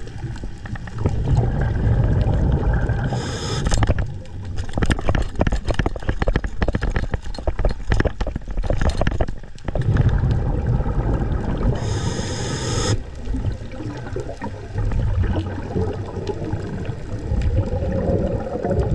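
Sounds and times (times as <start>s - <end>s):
clicks and knocks underwater: 0.0s - 18.9s
water rushing: 9.7s - 18.9s.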